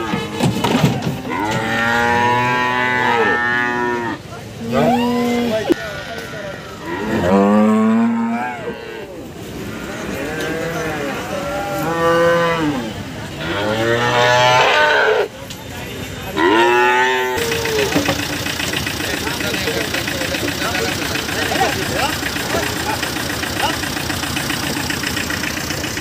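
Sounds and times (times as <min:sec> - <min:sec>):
cattle mooing: 0:01.2 - 0:15.3, 0:16.4 - 0:17.9.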